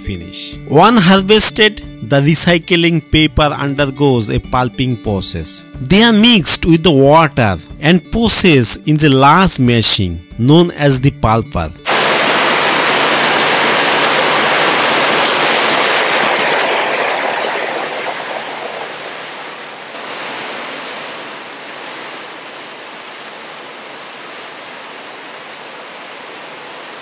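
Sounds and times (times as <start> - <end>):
pulper churning water: 11.9 - 27.0.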